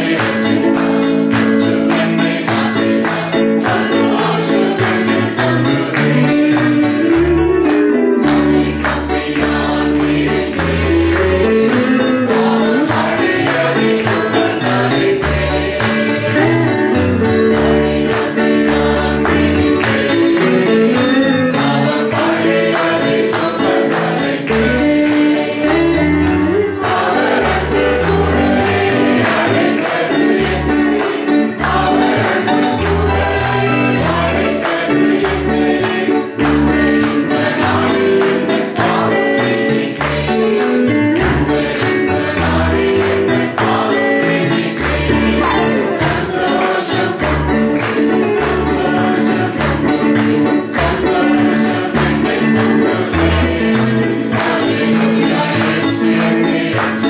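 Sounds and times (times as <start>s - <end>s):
backing music with bass and beat: 0.0s - 24.8s, 25.6s - 37.9s, 44.9s - 50.1s
people singing praise song: 0.0s - 57.0s
high jingling percussion: 5.4s - 13.8s, 15.5s - 24.4s, 25.6s - 29.6s, 30.5s - 35.2s, 47.9s - 49.5s.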